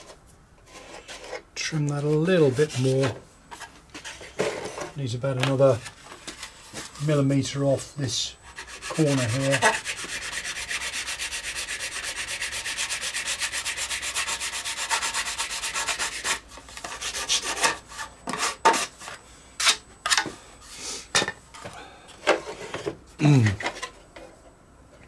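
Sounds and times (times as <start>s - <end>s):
sanding strokes on plastic: 8.5s - 18.9s.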